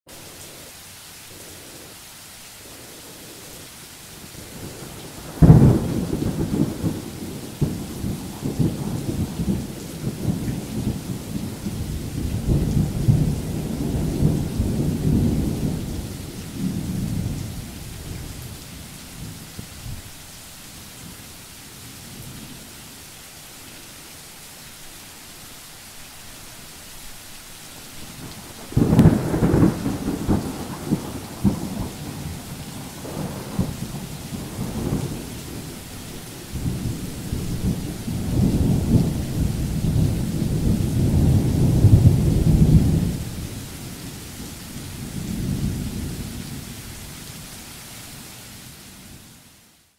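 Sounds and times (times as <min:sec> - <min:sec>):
rain hissing: 0:00.1 - 0:49.9
thunder rumbling: 0:04.4 - 0:20.0, 0:28.0 - 0:46.7.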